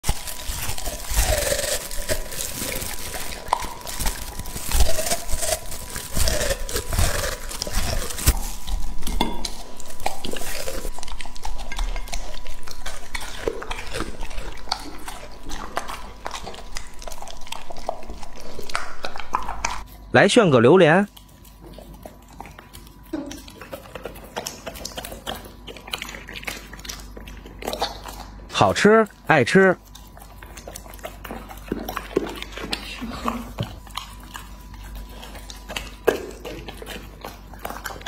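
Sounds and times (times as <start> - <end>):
dog chewing and crunching: 0.0 - 38.0
dog licking a ceramic plate: 7.7 - 20.0, 21.1 - 28.3, 29.8 - 38.0.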